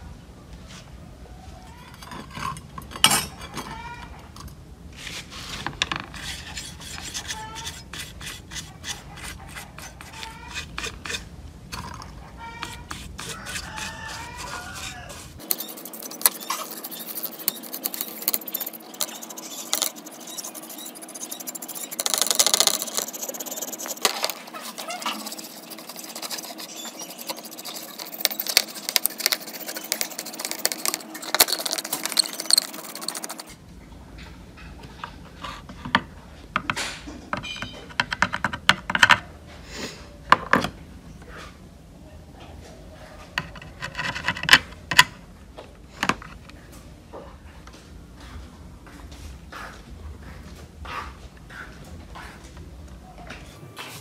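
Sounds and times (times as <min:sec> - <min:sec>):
paintbrush scrubbing circuit boards: 0:05.0 - 0:33.5.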